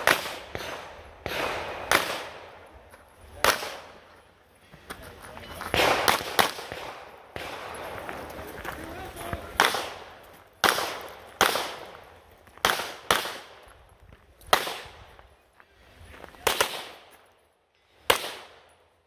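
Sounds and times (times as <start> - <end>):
pistol shots with echo: 0.0 - 4.1, 5.7 - 8.2, 9.3 - 13.7, 14.5 - 15.2, 16.4 - 17.2, 18.0 - 18.8.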